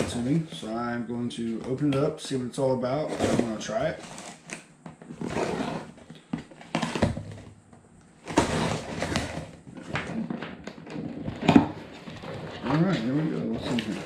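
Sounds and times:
cardboard box being opened: 0:03.0 - 0:07.4, 0:08.2 - 0:14.0.

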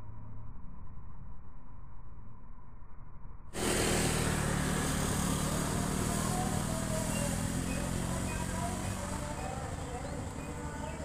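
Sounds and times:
outdoor background drone and hiss: 0:03.6 - 0:11.0.

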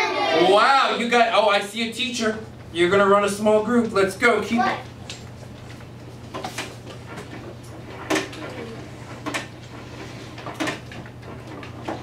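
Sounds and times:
low room hum: 0:00.0 - 0:12.0.

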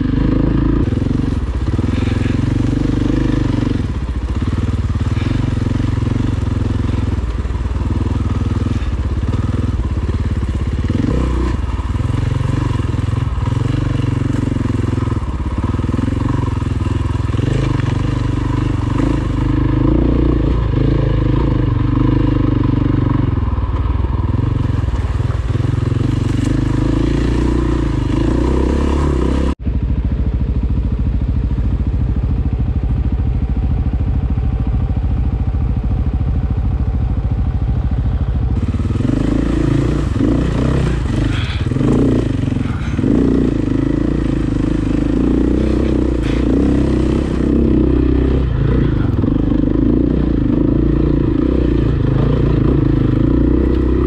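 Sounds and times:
dirt bike engine: 0:00.0 - 0:54.0.

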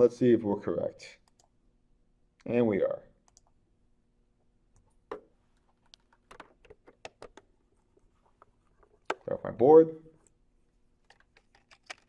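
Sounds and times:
computer clicking: 0:01.2 - 0:01.6, 0:03.2 - 0:03.6, 0:05.8 - 0:07.5, 0:11.0 - 0:12.0.

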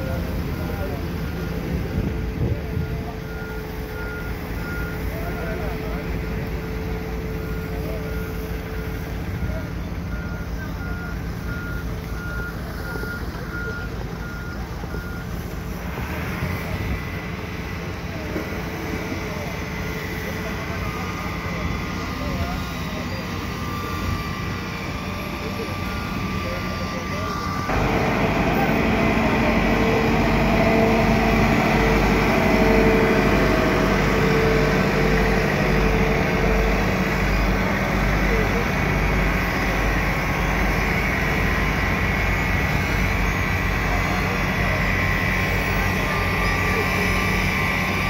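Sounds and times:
low engine rumble: 0:00.0 - 0:48.0
steady high tone: 0:20.3 - 0:48.0
backup alarm beeping: 0:25.5 - 0:38.9.

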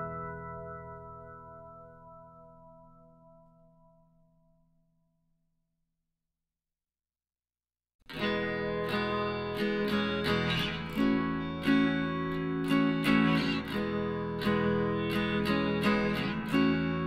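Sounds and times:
acoustic guitar music: 0:00.0 - 0:03.5, 0:08.1 - 0:17.0.

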